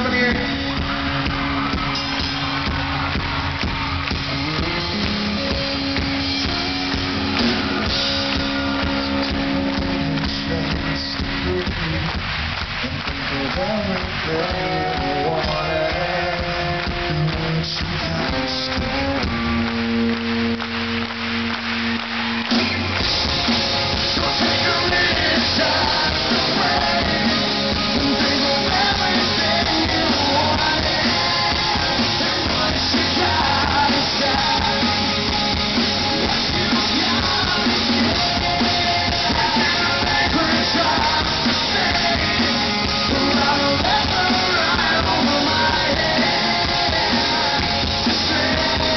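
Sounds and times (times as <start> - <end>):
drums: 0.0 - 48.9
electric guitar chords: 0.0 - 48.9
live rock band playing: 0.0 - 48.9
person singing: 12.8 - 19.3, 23.9 - 48.9.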